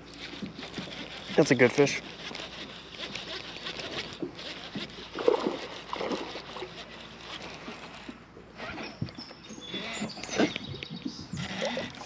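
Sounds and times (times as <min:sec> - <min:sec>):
water splashing and sloshing: 0:00.0 - 0:12.0.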